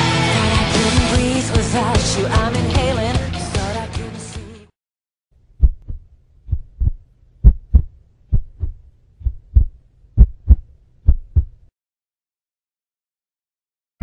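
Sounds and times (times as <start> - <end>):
heartbeat thumps: 5.6 - 11.6.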